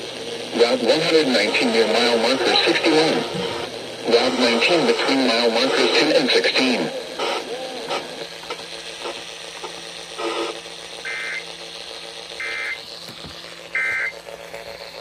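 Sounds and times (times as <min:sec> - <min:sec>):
warbling digital data tones: 0:11.0 - 0:11.5.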